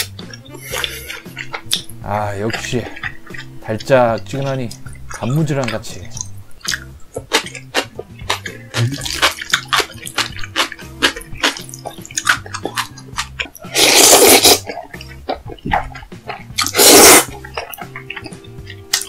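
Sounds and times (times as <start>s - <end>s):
slurping noodles: 0.0s - 1.9s, 6.2s - 18.8s
background music: 0.0s - 19.0s
crunchy chewing: 0.0s - 19.0s.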